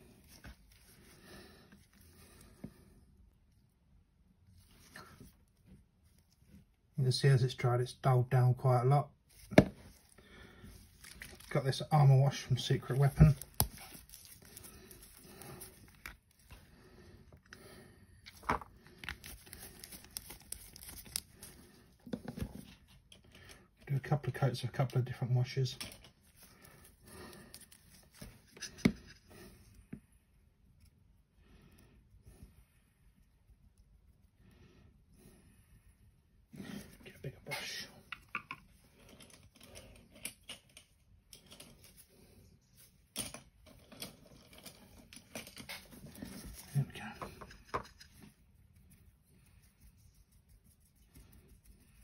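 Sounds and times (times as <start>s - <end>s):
gloved hands rustling plastic bottle: 0.0s - 2.8s, 9.2s - 23.8s, 25.8s - 29.4s.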